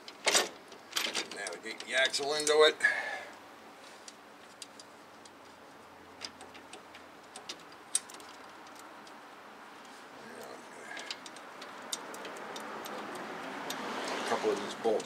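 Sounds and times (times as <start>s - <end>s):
light metallic clicks and taps: 11.0s - 15.0s.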